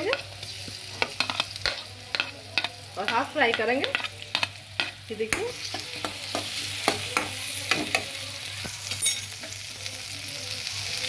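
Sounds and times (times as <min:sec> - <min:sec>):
spatula scraping and tapping pan: 0:00.0 - 0:08.1
vegetables sizzling in hot oil: 0:00.0 - 0:11.0.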